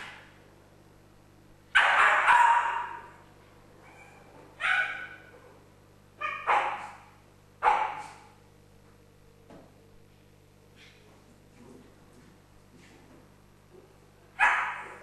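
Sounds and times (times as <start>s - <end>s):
dog barking: 1.8s - 3.2s, 3.9s - 5.3s, 6.2s - 8.3s, 14.4s - 15.0s.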